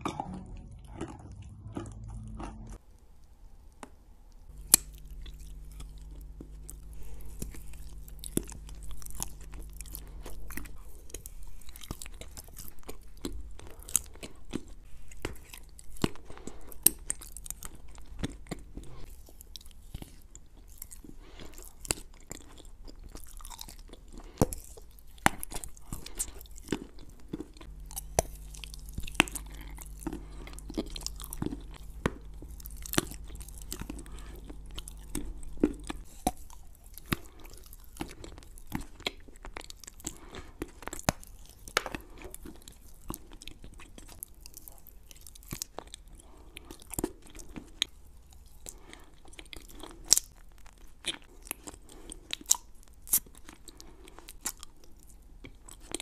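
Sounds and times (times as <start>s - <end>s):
chewing crunchy clay: 0.0s - 2.8s, 4.5s - 56.0s.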